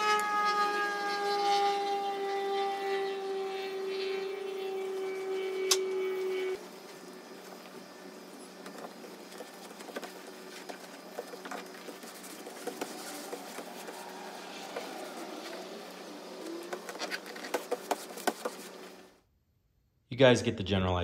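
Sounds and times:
steady low hum: 0.6s - 20.3s
vinyl scratching and crinkling: 8.4s - 19.1s.

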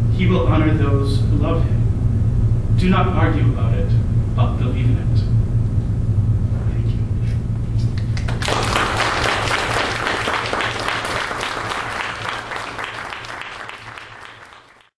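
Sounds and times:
audience applauding: 8.0s - 14.9s.

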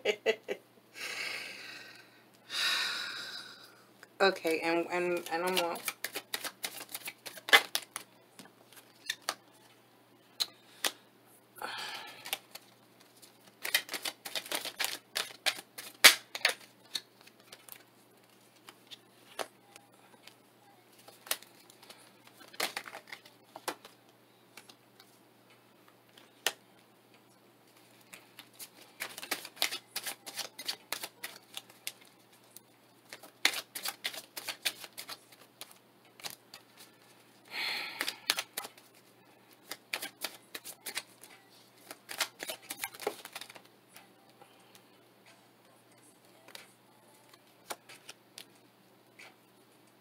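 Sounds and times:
cards being shuffled: 5.0s - 9.4s, 12.0s - 25.1s, 27.7s - 37.2s, 37.8s - 43.7s, 47.3s - 48.6s
cards riffling: 5.2s - 9.4s, 12.0s - 19.5s, 21.0s - 24.0s, 27.8s - 37.1s, 37.8s - 38.9s, 39.5s - 43.7s, 47.3s - 48.5s.

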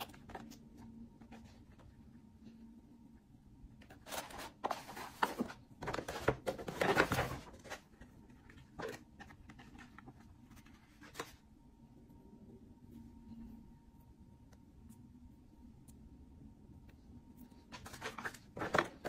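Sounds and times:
paper bag and cardboard rustling: 4.0s - 7.9s.

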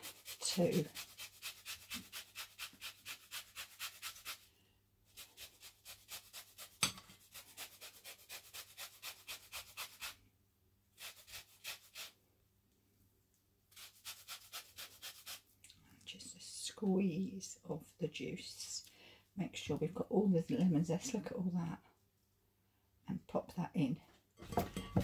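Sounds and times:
lemon rasping on grater: 0.0s - 4.5s, 5.1s - 10.2s, 11.0s - 12.2s, 13.7s - 15.4s.

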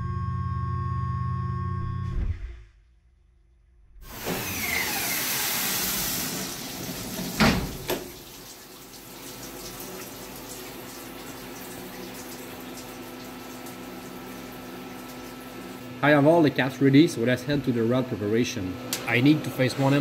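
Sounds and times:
machine hum with faint tone: 6.5s - 20.0s.

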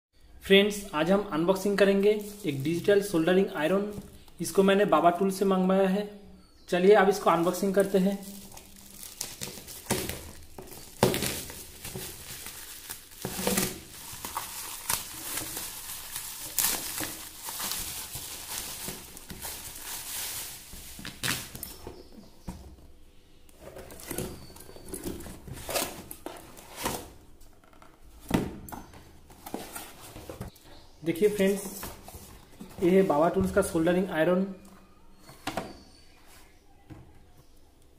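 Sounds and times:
plastic wrapping crinkling: 1.6s - 4.6s, 7.1s - 22.1s
packing tape tearing: 7.8s - 21.8s.

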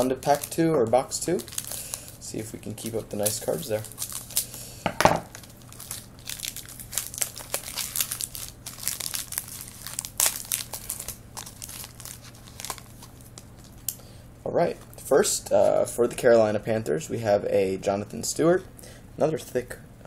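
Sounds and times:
foil wrapper crinkling: 0.0s - 14.0s.

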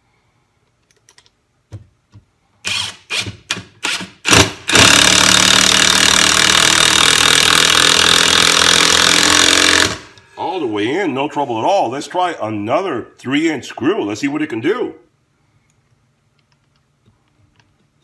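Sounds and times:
impact wrench driving screw: 2.6s - 10.1s.

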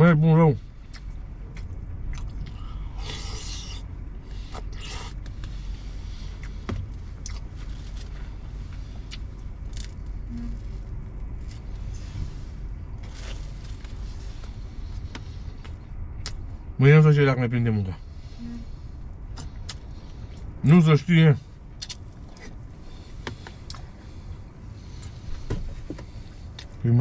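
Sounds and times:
steady low hum: 0.0s - 27.0s
chewing: 0.9s - 3.8s, 7.2s - 10.1s.

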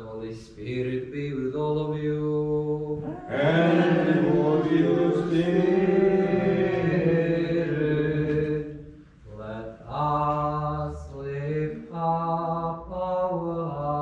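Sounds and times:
voices chanting: 3.0s - 8.8s.

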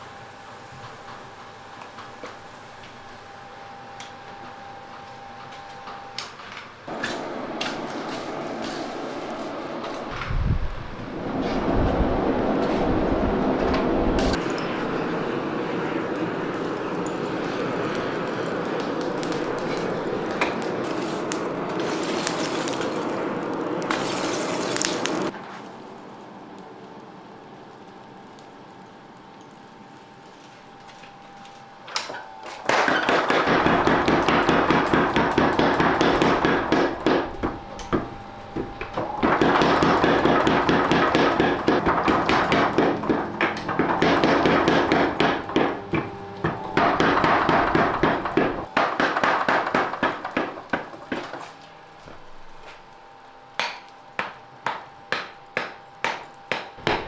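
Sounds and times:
hammer striking hot steel on anvil: 14.2s - 15.0s, 32.0s - 51.5s, 53.5s - 57.0s.

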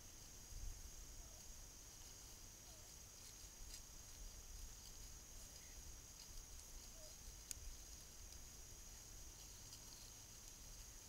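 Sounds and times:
steady high-pitched hiss: 0.0s - 11.0s
faint clicks: 3.2s - 8.5s.

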